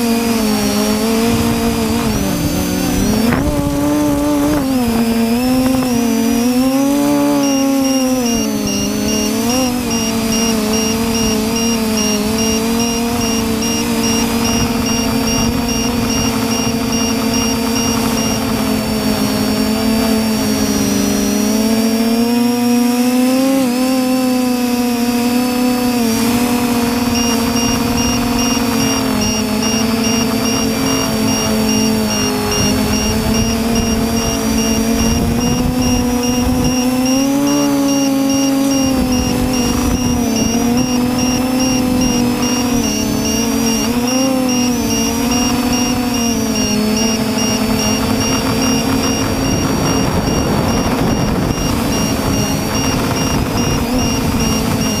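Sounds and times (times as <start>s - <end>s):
drone propellers whining: 0.0s - 55.0s
wind rumble: 0.4s - 7.0s, 47.6s - 55.0s.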